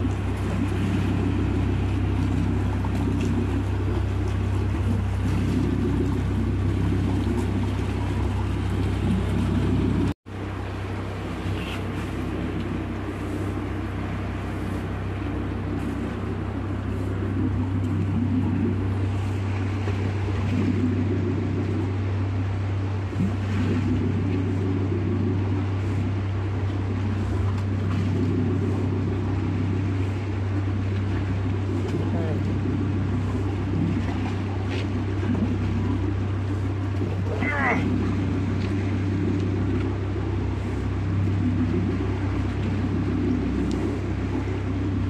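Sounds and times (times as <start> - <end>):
boat engine idling: 0.0 - 45.0.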